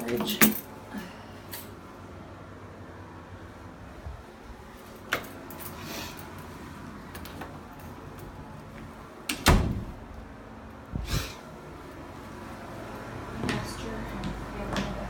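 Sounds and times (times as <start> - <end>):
door shutting with thud: 9.3 - 10.1.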